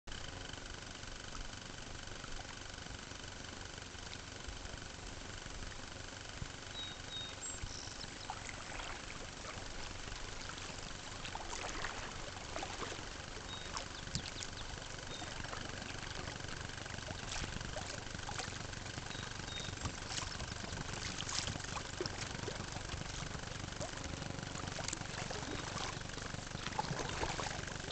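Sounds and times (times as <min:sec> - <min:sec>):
water lapping against kayak: 0:01.2 - 0:27.9
small splashes and drips: 0:08.1 - 0:27.9.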